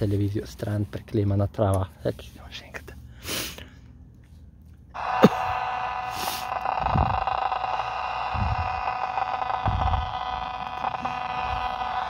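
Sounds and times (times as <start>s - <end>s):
analog tv static buzz and hiss: 5.0s - 12.0s.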